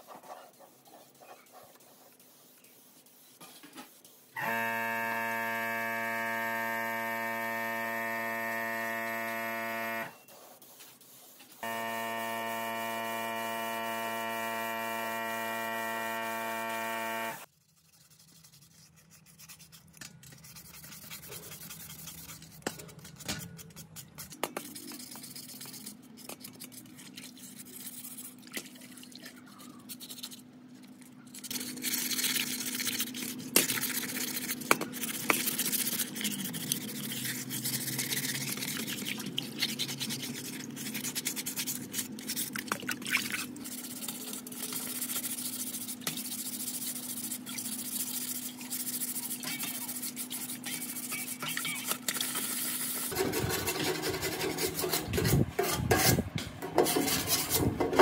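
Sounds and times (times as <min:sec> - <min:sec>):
dry sandpaper rasping on sheet metal: 0:10.1 - 0:13.5, 0:17.4 - 0:28.4, 0:31.4 - 0:42.6, 0:43.6 - 0:58.0
wet sandpaper scrubbing metal: 0:15.2 - 0:28.4, 0:31.3 - 0:58.0.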